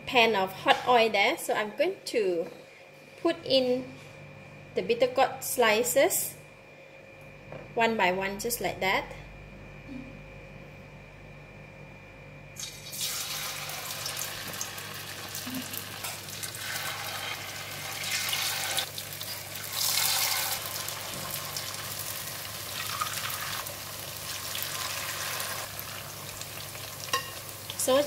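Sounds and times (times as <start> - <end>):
vegetable slices sizzling in oil: 12.7 - 28.0.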